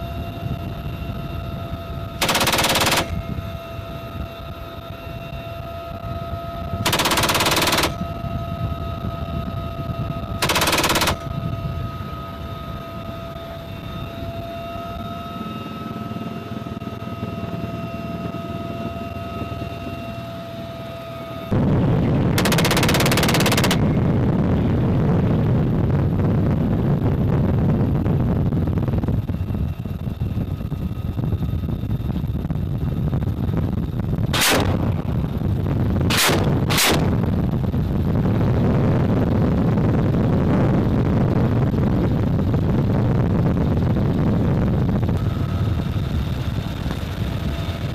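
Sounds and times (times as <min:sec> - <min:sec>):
helicopter cabin whine: 0:00.0 - 0:47.9
machine gun bursts: 0:02.2 - 0:03.2, 0:06.9 - 0:08.0, 0:10.4 - 0:11.3, 0:22.4 - 0:23.8, 0:34.4 - 0:34.8, 0:36.1 - 0:37.1.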